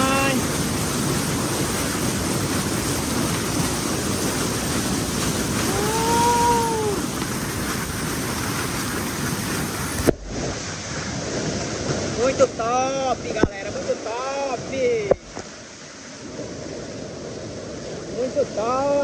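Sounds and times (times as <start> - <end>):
water rushing over rocks: 0.0 - 19.0.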